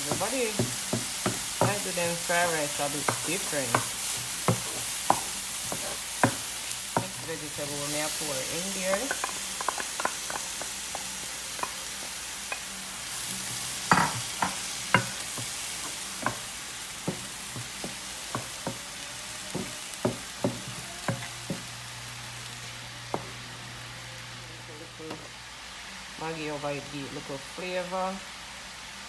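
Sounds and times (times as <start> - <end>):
wooden spatula knocking on pan: 0.0 - 1.9, 3.0 - 6.4, 17.0 - 18.9, 19.5 - 21.7
vegetables sizzling in a frying pan: 0.0 - 29.0.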